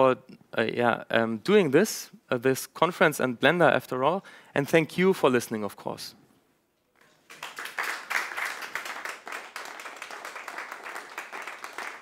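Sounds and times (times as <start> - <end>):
audience applause: 7.2 - 12.0.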